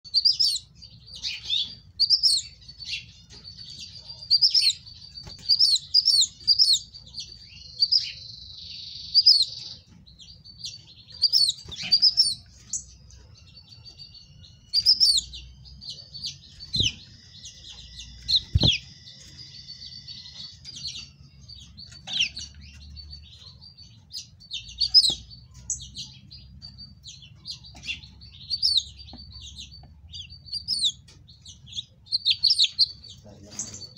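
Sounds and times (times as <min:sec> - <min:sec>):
finches chirping: 0:00.1 - 0:33.9
sharp knocks: 0:18.4 - 0:18.9.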